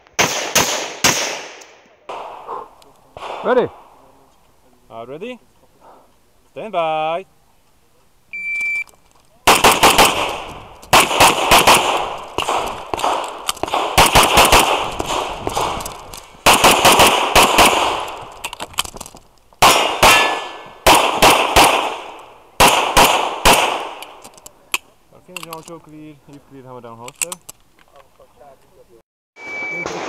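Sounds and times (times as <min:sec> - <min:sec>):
pistol shots echoing: 0:00.2 - 0:04.0, 0:09.4 - 0:18.3, 0:19.6 - 0:24.2.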